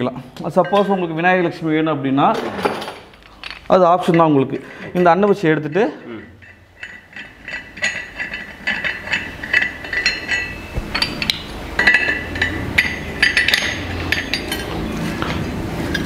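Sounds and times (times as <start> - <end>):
brass lamp parts clinking: 0.5 - 1.2, 2.3 - 16.0.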